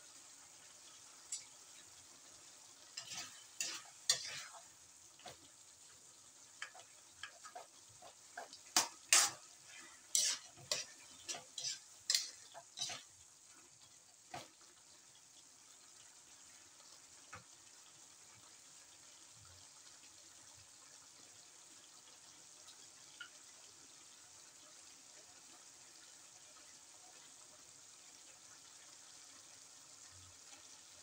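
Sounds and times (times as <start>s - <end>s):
low hiss: 0.0s - 25.0s
spatula scraping metal wok: 2.9s - 5.4s, 6.6s - 13.2s.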